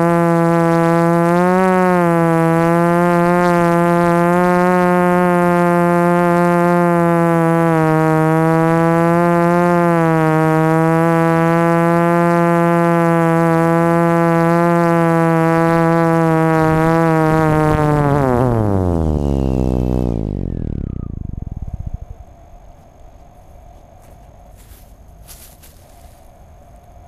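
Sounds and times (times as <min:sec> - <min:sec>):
drone propellers buzzing: 0:00.0 - 0:27.0.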